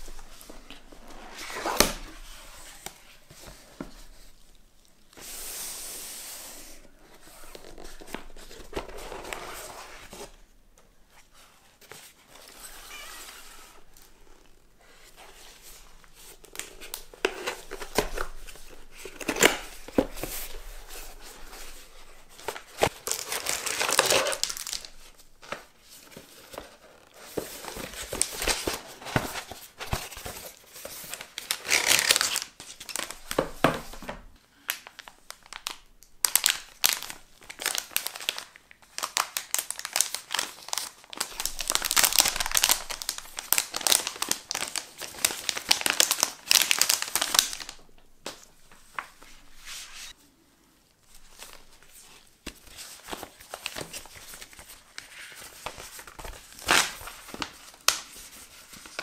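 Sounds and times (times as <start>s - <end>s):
plastic bags crinkling: 22.5s - 25.0s, 34.8s - 47.8s.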